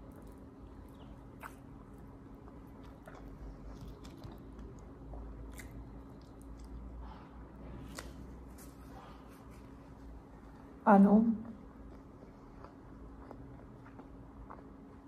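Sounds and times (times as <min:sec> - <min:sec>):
person chewing food: 0:00.0 - 0:10.0, 0:11.5 - 0:15.0
low steady hum: 0:00.0 - 0:15.0.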